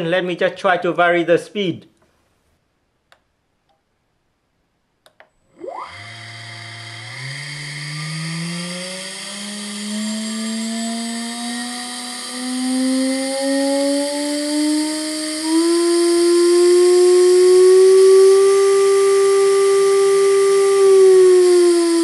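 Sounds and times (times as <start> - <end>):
spindle motor whine: 5.5 - 22.0.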